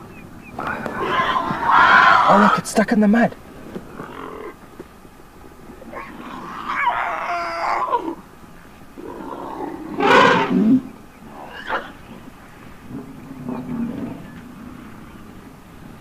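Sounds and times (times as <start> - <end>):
elephant calf screaming: 0.6 - 2.8, 5.8 - 8.2, 9.0 - 12.0.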